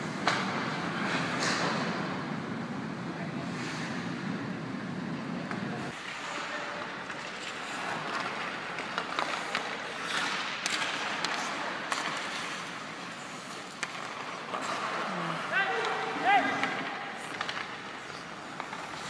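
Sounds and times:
sticks clacking on puck: 0.1s - 2.0s, 5.4s - 19.0s
skate blades scraping ice: 5.9s - 19.0s.

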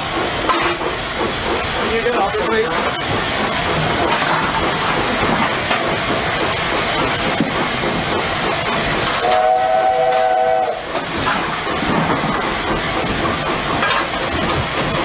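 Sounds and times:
steam hiss: 0.0s - 15.0s
steam locomotive chime whistle: 9.2s - 10.9s.

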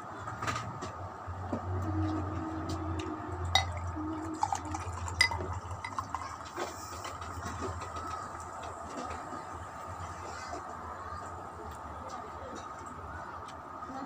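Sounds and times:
drink pouring into glass: 3.5s - 8.4s.

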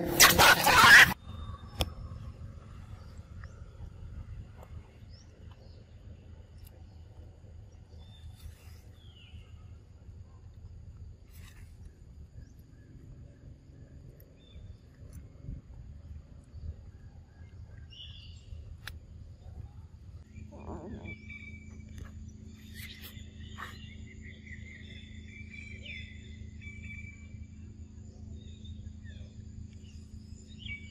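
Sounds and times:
animal calls chirping: 0.0s - 1.2s, 20.5s - 21.6s
low rumble: 0.0s - 30.9s.

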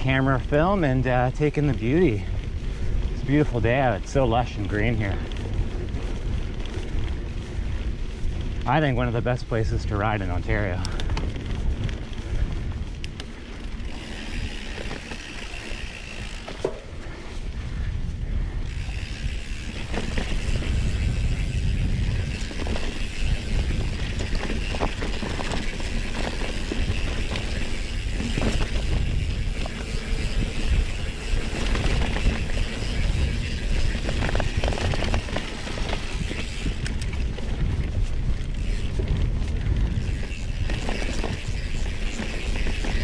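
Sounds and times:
bike rattles and clicks: 0.0s - 43.0s
bike tyres rumbling on dirt: 0.0s - 43.0s
wind on microphone: 0.0s - 43.0s.

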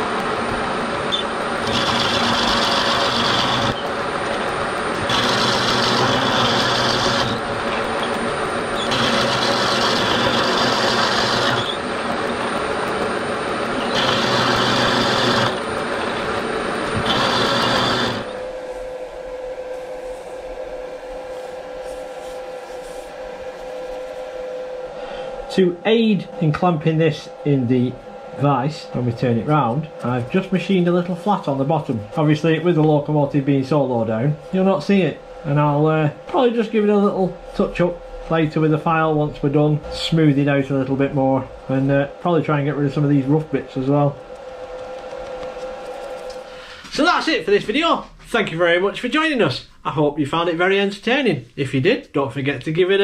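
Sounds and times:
milling machine cutting metal: 0.0s - 18.5s
machine humming: 0.0s - 50.7s.

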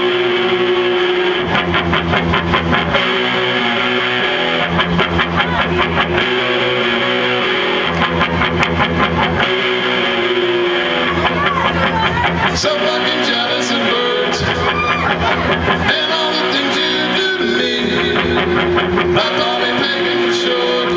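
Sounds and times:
electric guitars strumming: 0.0s - 20.9s
live band playing: 0.0s - 20.9s.

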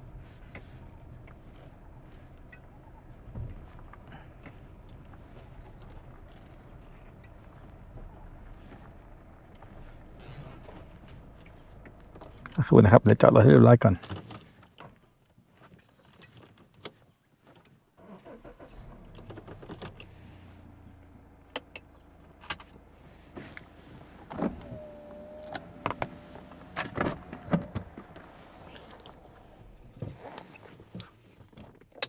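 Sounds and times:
low engine hum: 0.0s - 13.9s, 18.0s - 31.7s
clicks and knocks inside car: 24.2s - 32.0s.

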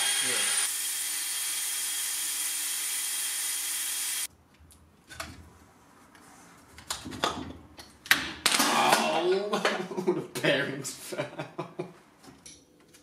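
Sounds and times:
cordless drill running: 0.0s - 4.3s.

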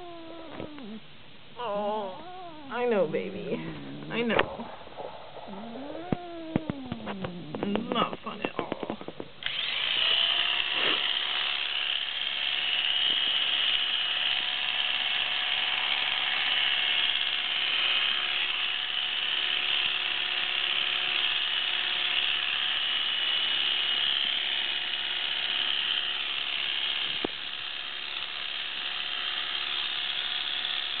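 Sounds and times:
electric clippers buzzing: 9.4s - 31.0s.

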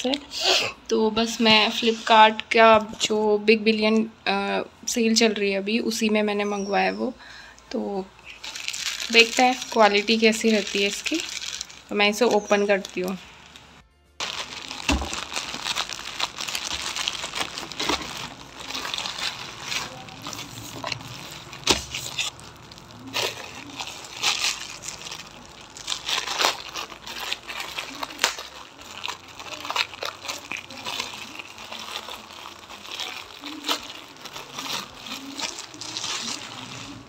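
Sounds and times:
plastic wrap crinkling: 7.8s - 37.0s.

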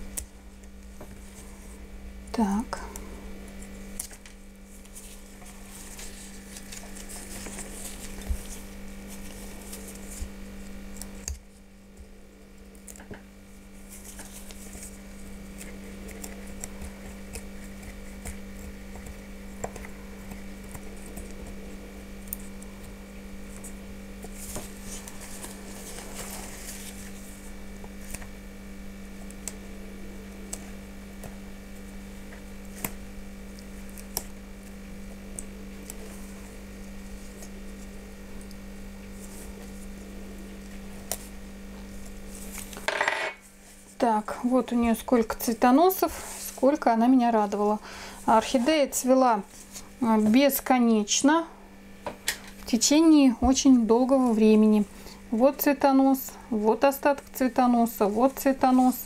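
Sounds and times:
steady low hum: 0.0s - 59.0s
dry roots rustling and crackling: 3.4s - 29.7s.

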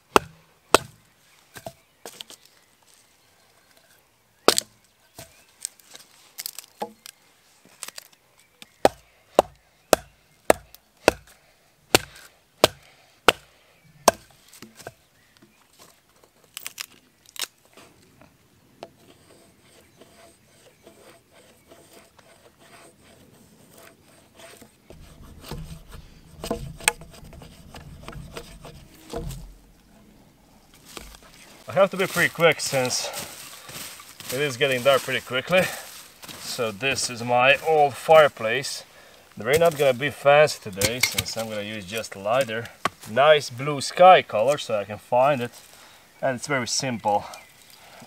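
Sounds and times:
machete knocking on wood: 0.1s - 1.0s, 8.8s - 11.3s, 14.1s - 14.3s
blade scraping wood: 18.9s - 38.8s.

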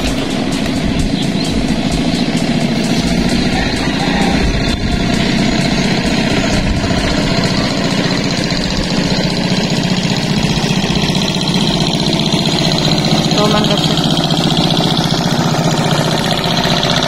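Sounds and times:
engine running steadily: 0.0s - 17.0s.

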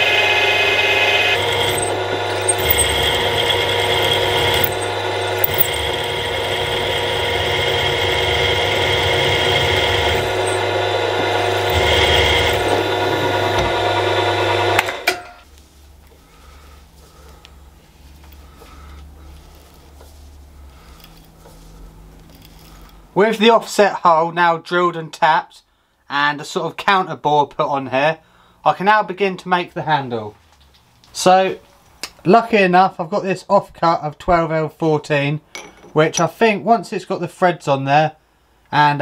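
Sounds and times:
milling machine whining: 0.0s - 15.2s.

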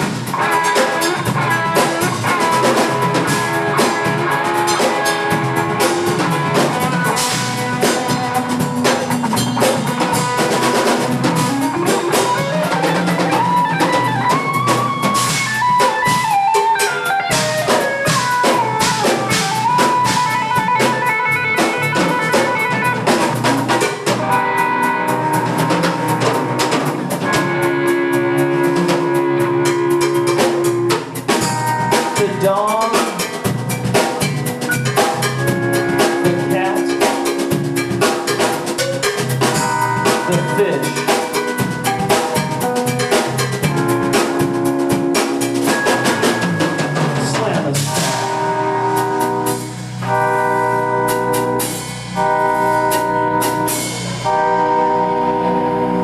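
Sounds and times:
bass guitar: 0.0s - 56.0s
drum kit steady beat: 0.0s - 56.0s
electric guitar: 0.0s - 56.0s.

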